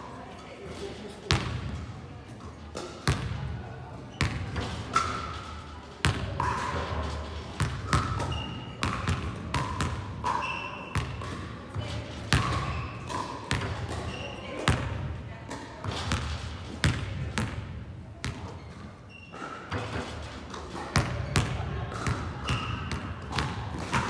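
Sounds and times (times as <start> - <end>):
basketball bouncing on court: 1.3 - 1.7, 3.0 - 3.5, 4.2 - 5.1, 7.6 - 15.1, 15.9 - 18.6, 21.0 - 24.0.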